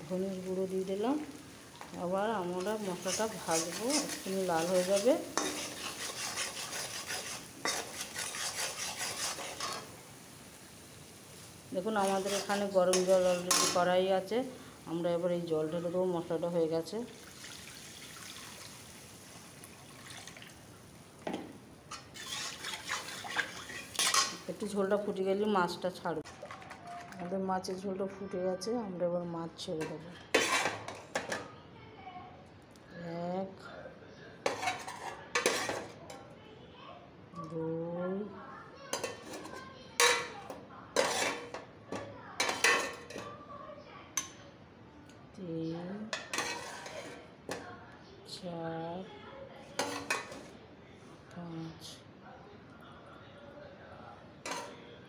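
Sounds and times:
hot water pouring into a wok: 17.1s - 21.0s, 22.1s - 24.7s
steel ladle clanking on pot: 39.0s - 43.3s, 46.1s - 47.6s.

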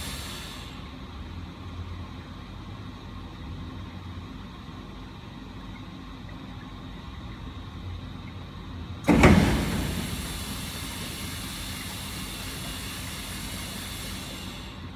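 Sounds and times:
hiss of spray: 0.0s - 0.8s, 9.1s - 14.9s
water running through filter: 4.8s - 14.9s
loud blast of spray: 9.1s - 14.8s.

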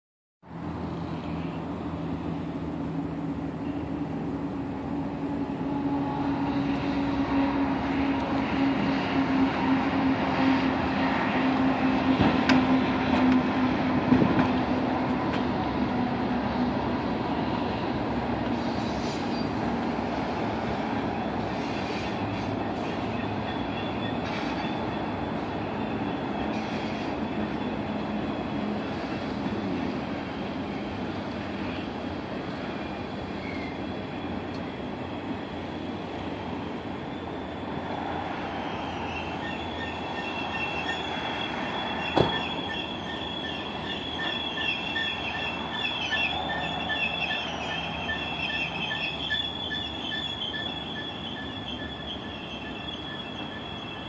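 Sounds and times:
diesel locomotive engines droning: 0.4s - 54.0s
train wheels running on rails: 0.5s - 54.0s.

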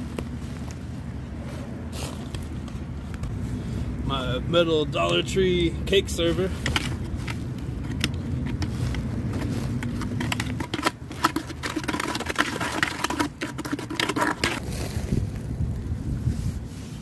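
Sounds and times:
metal server scraping plastic bucket: 6.1s - 15.1s.

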